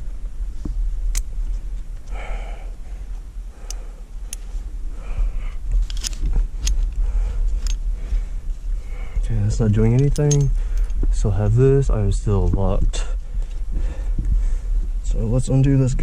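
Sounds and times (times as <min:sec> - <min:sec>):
wind rumbling on microphone: 0:00.0 - 0:16.0
metallic clicks of climbing gear: 0:01.1 - 0:02.2, 0:03.6 - 0:04.5, 0:05.6 - 0:07.9, 0:09.6 - 0:11.1.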